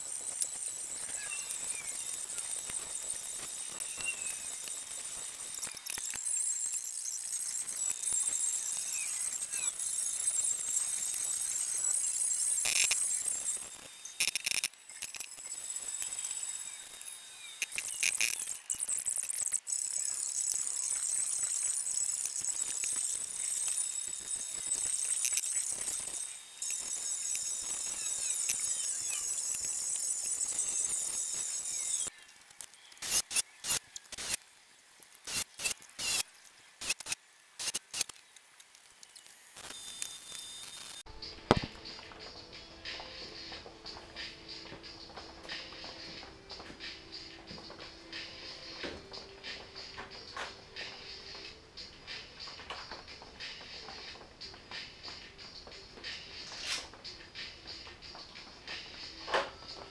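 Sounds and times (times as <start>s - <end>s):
metalworking tool rasping bursts: 0.0s - 32.1s, 33.0s - 34.4s, 35.2s - 36.2s, 36.8s - 38.1s
welder crackling sizzle: 0.0s - 59.9s.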